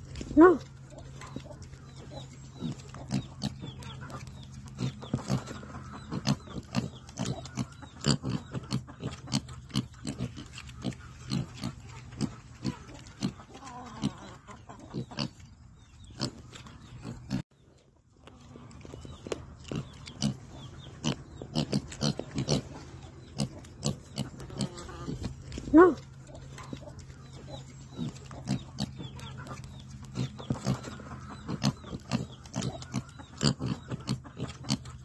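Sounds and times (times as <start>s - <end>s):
pigs grunting: 0.0s - 17.4s, 19.6s - 35.0s
pigs crunching while chewing: 0.0s - 35.0s.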